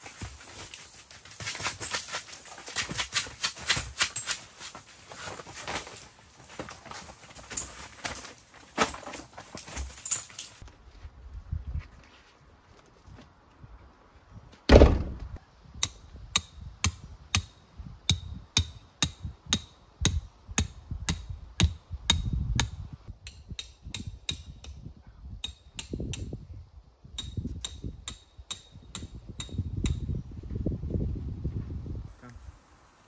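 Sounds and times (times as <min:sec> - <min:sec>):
heavy thump: 0:14.7 - 0:15.4
hammer striking metal stakes: 0:15.8 - 0:26.3, 0:27.2 - 0:30.1.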